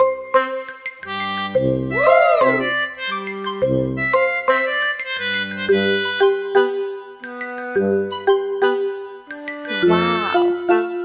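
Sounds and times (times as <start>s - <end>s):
upbeat background music: 0.0s - 11.0s
swooping sound effect: 2.0s - 2.8s.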